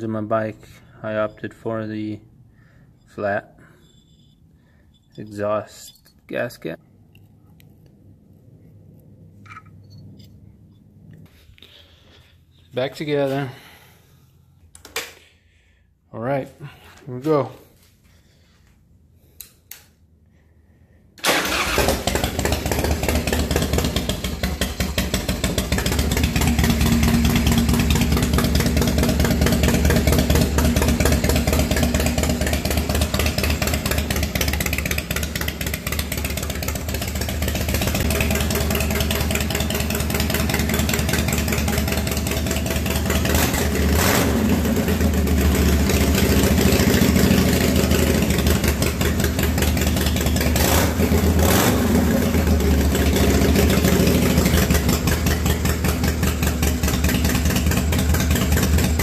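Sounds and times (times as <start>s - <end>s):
motorcycle engine starting and running: 21.2s - 59.0s.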